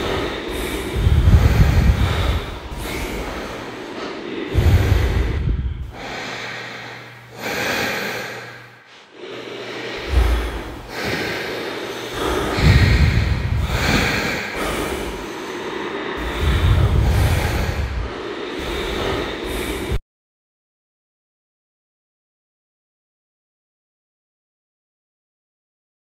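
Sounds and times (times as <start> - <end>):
slow loud breathing: 0.0 - 20.0.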